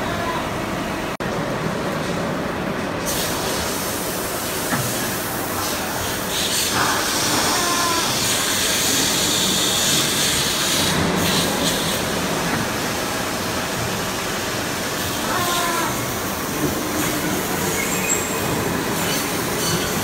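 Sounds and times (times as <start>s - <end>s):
machine running noise: 0.0s - 20.0s
hiss: 3.0s - 20.0s.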